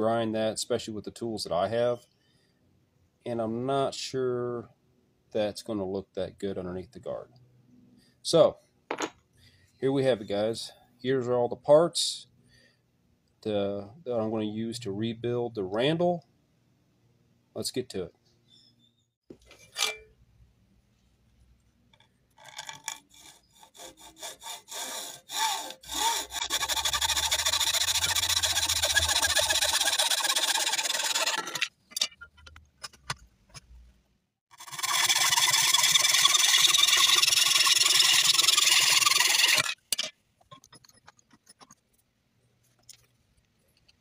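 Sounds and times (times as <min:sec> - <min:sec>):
hacksaw cutting steel: 0:19.7 - 0:20.1, 0:22.4 - 0:32.2, 0:34.5 - 0:40.2.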